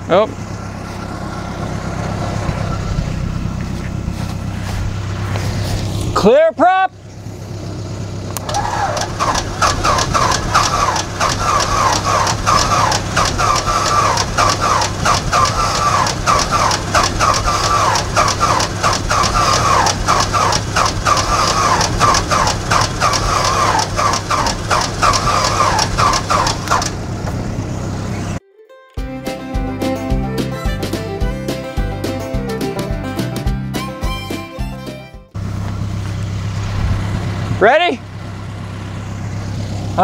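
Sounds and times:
starter cranking engine: 0:07.7 - 0:28.4.

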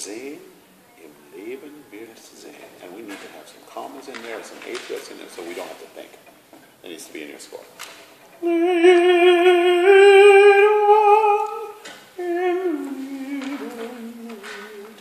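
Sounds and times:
person singing wordless melody: 0:08.4 - 0:15.0.

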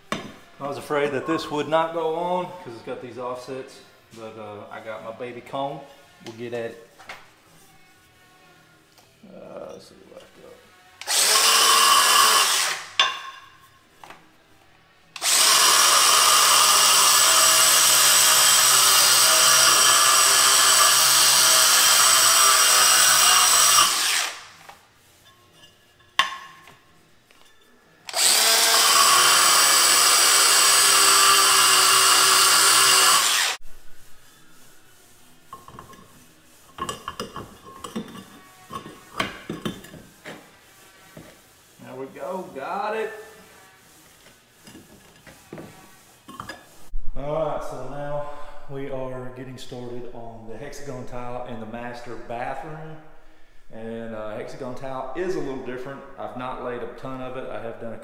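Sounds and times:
power tool grinding tile: 0:11.0 - 0:13.0, 0:15.2 - 0:24.5, 0:28.1 - 0:33.6.

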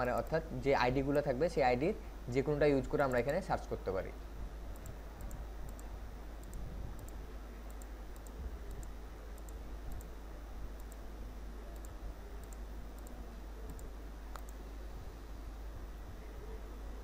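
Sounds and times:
steady low hum: 0:00.0 - 0:17.0
computer mouse clicking: 0:04.7 - 0:10.1, 0:10.8 - 0:11.0, 0:11.8 - 0:14.6.

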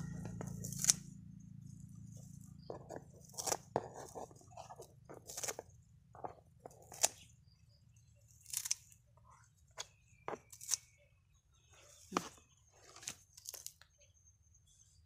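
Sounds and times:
scissors snipping stems: 0:00.1 - 0:01.1, 0:02.3 - 0:07.2, 0:08.4 - 0:09.0, 0:10.4 - 0:11.0.

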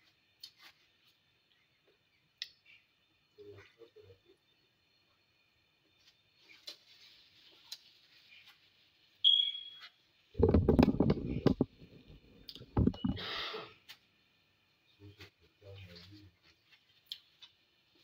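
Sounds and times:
brief high squeak: 0:09.3 - 0:10.0
phone handling rubbing and knocking: 0:10.4 - 0:11.8, 0:12.6 - 0:13.2.

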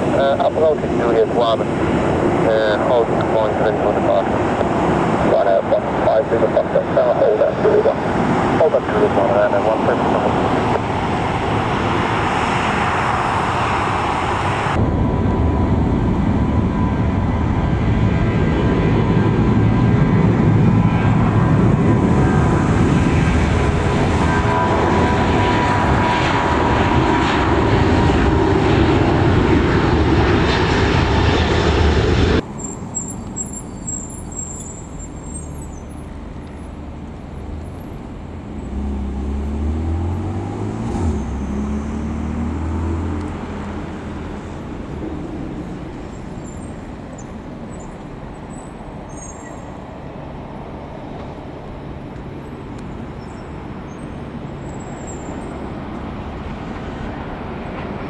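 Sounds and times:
jet engine whine: 0:00.0 - 0:58.0
low engine sound: 0:31.8 - 0:47.7.

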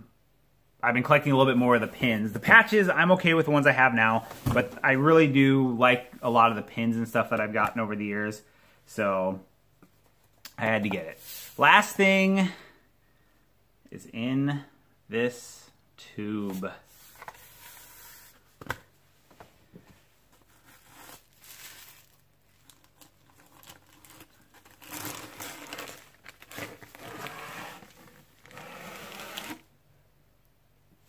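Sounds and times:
paper crinkling and rustling: 0:20.3 - 0:29.6.

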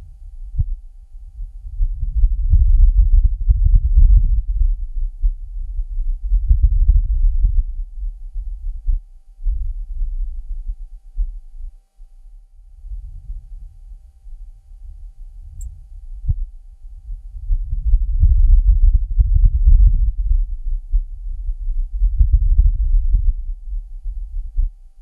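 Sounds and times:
wind buffeting microphone: 0:01.4 - 0:08.7, 0:14.8 - 0:24.7.

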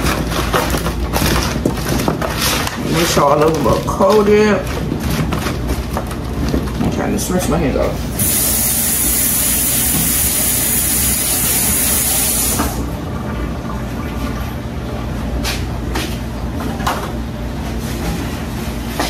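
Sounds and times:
faucet running: 0:08.2 - 0:12.8.

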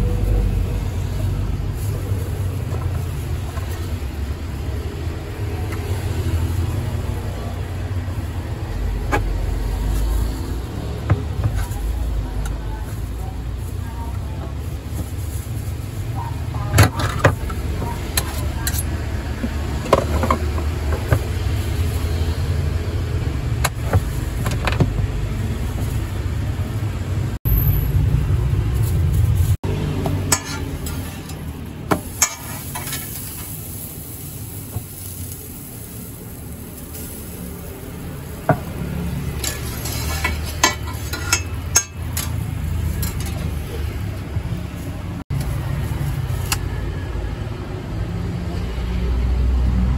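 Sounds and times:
low rumble of street traffic: 0:00.0 - 0:49.9
utensils clicking and tapping: 0:38.5 - 0:44.2.

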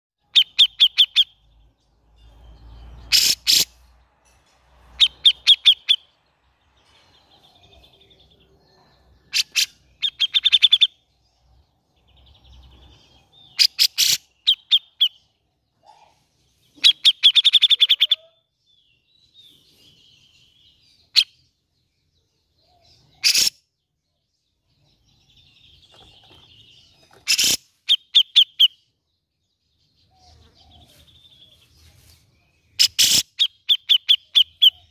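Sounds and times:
sharp loud bird calls: 0:00.2 - 0:03.9, 0:04.9 - 0:06.2, 0:09.1 - 0:11.2, 0:12.1 - 0:15.4, 0:16.6 - 0:21.6, 0:22.6 - 0:23.9, 0:24.9 - 0:29.0, 0:32.6 - 0:34.9
bulbul chattering song: 0:00.2 - 0:04.0, 0:04.8 - 0:06.2, 0:09.3 - 0:11.2, 0:12.0 - 0:15.4, 0:16.6 - 0:18.9, 0:23.0 - 0:23.8, 0:24.7 - 0:29.0, 0:32.7 - 0:34.9.

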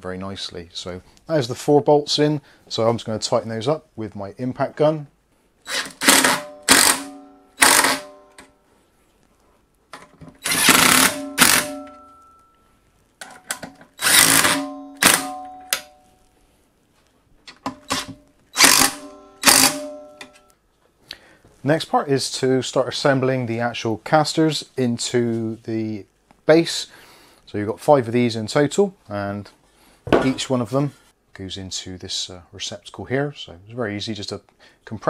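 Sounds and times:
impact driver bursts: 0:05.7 - 0:08.3, 0:10.4 - 0:12.0, 0:14.0 - 0:15.4, 0:17.8 - 0:20.1.

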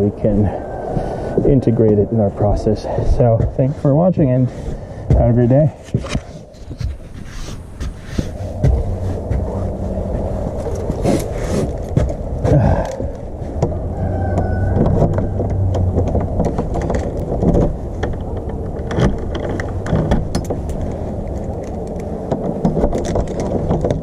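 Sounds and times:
camera microphone handling rumble: 0:00.0 - 0:24.0
keys rattling: 0:10.5 - 0:13.2.

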